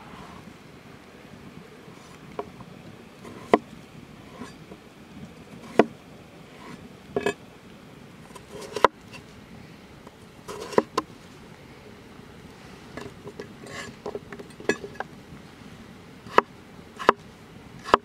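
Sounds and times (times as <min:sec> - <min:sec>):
knife cutting potato on board: 0:08.4 - 0:08.9, 0:16.3 - 0:17.2.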